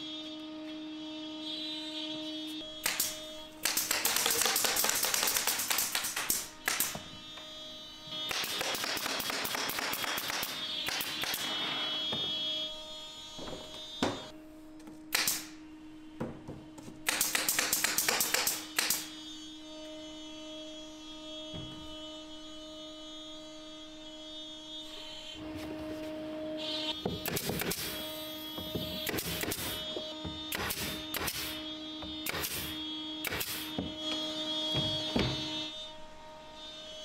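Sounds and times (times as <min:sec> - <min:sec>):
nail gun firing: 0:02.8 - 0:07.0, 0:08.3 - 0:11.8, 0:15.1 - 0:15.5, 0:17.0 - 0:19.1, 0:27.2 - 0:28.0, 0:28.9 - 0:29.9, 0:30.5 - 0:31.6, 0:32.2 - 0:33.8.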